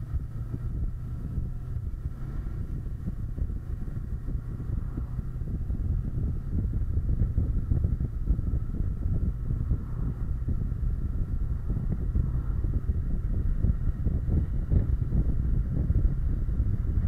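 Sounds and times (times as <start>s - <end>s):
motorcycle engine rumble: 0.0s - 17.0s
wind buffeting microphone: 0.0s - 17.0s.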